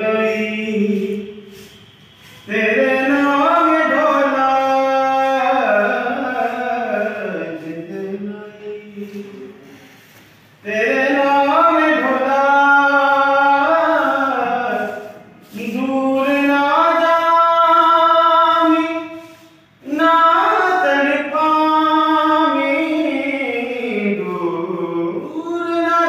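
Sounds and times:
person singing unaccompanied: 0.0 - 26.0
singer breathing: 9.4 - 10.6, 19.1 - 19.8.

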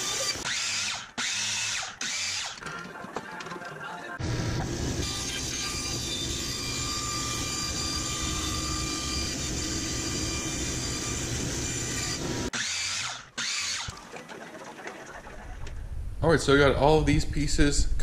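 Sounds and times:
band saw cutting plywood: 0.0 - 2.6, 4.2 - 14.0
miter saw whining and cutting: 0.0 - 2.6, 4.2 - 14.0.

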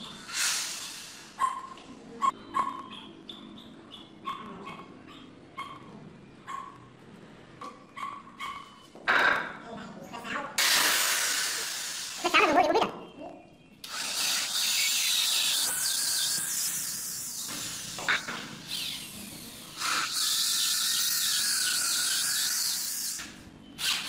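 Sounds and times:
electric drill boring into wood: 13.9 - 17.8.

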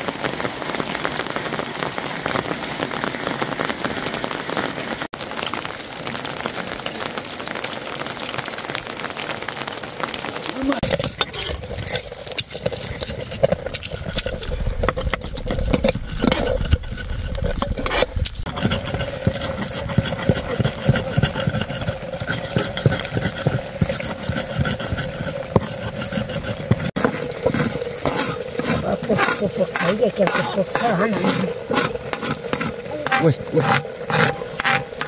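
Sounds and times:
stone scraping and crunching: 10.8 - 35.0.

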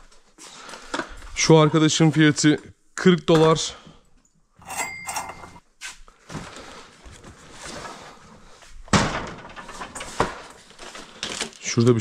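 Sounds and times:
household items being handled: 4.6 - 8.8.

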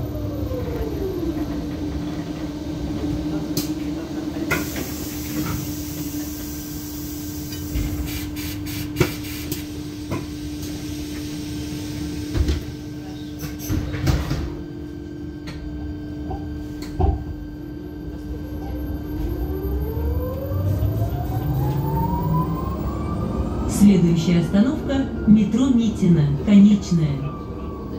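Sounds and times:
bus interior hum: 0.0 - 27.9
electric motor whine rising: 19.2 - 23.7.

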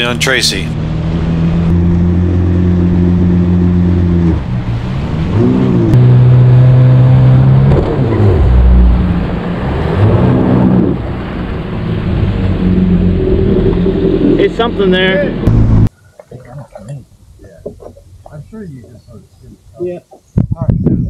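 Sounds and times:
jet ski engine revving: 1.1 - 15.7.

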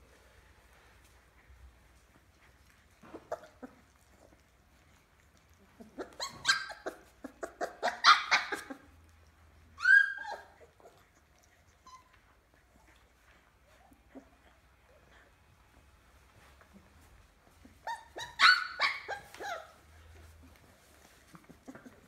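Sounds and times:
puppy yelping: 3.0 - 4.5, 5.7 - 9.0, 9.8 - 11.1, 17.6 - 20.6
puppies yipping and squealing: 5.6 - 9.0, 9.6 - 13.0, 17.4 - 22.0.

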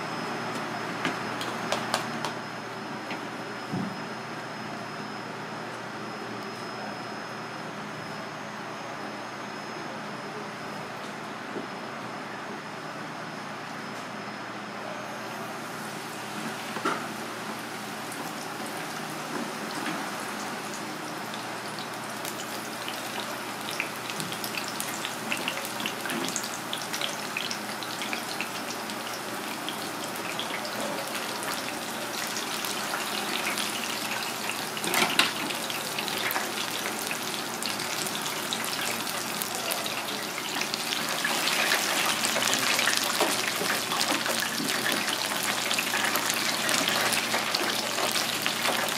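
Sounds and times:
tempura frying in hot oil: 0.1 - 7.7, 15.4 - 48.9.

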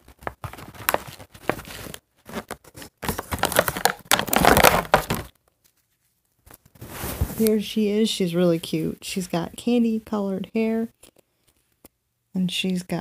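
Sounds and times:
plastic packaging crinkling: 0.0 - 6.8.

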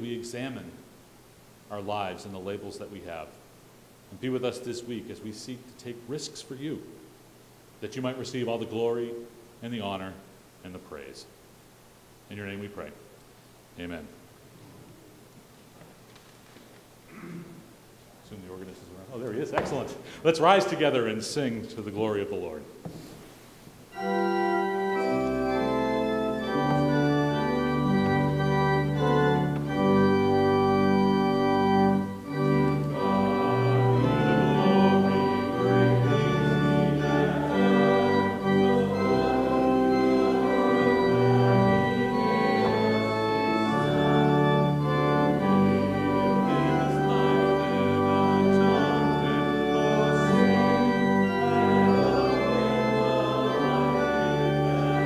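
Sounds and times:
organ playing a hymn: 1.7 - 3.3, 18.3 - 22.7, 23.9 - 55.0.

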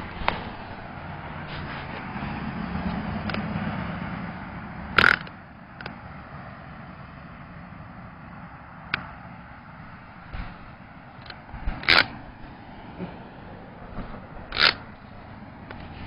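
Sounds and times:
steady outdoor hiss: 0.0 - 16.0.

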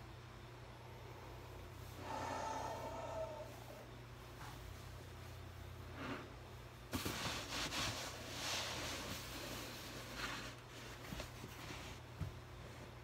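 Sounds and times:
clothing and balloon rustling: 6.9 - 13.0.

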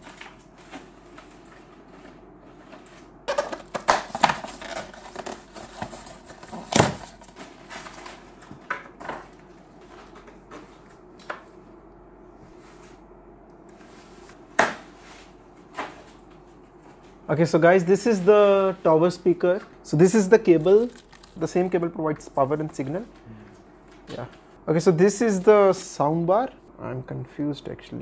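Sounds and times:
styrofoam and plastic wrap handled: 20.2 - 21.6.

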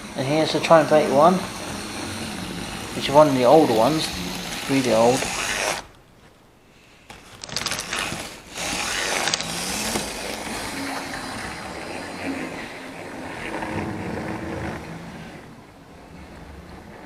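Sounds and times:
model train running on track: 0.0 - 5.8.

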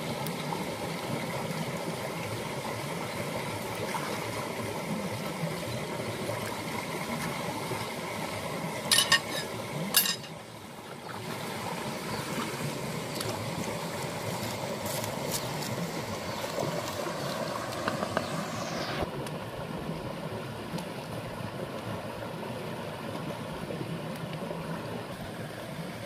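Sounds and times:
rocky river flowing: 0.0 - 18.9.

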